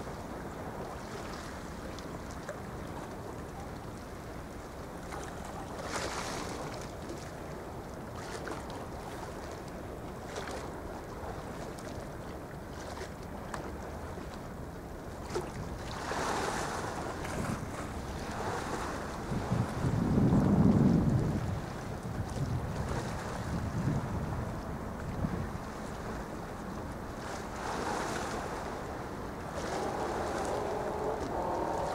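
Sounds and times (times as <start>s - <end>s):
wind: 0.0s - 31.9s
sea waves rushing: 15.1s - 31.9s.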